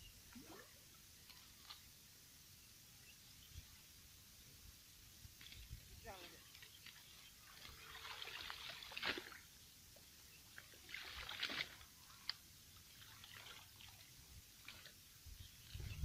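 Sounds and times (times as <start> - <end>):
water splashing and dripping: 5.3 - 9.5, 10.5 - 15.0.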